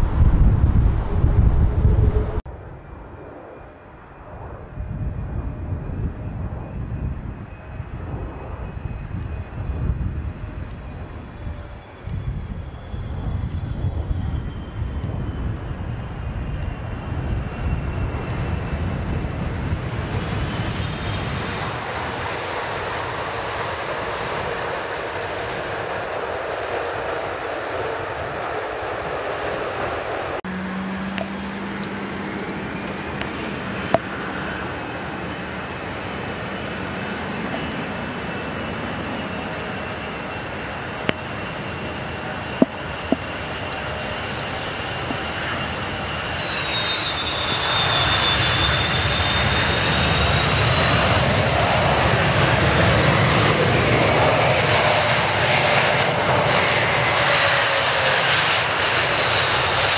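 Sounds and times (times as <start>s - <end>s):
low jet engine hum: 0.0s - 26.0s, 29.2s - 59.9s
jet engine noise: 0.0s - 59.9s
thin high whine: 30.5s - 53.9s
landing gear rumbling on runway: 30.5s - 59.9s.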